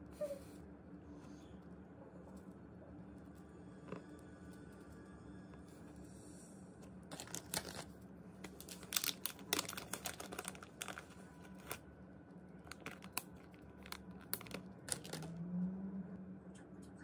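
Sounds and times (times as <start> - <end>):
packet crinkling: 7.1 - 11.8, 12.6 - 15.3.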